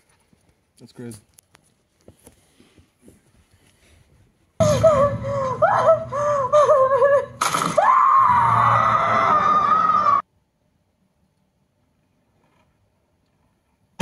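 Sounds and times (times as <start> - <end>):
eerie wavering shriek: 4.6 - 10.2
low rumble: 4.6 - 10.2.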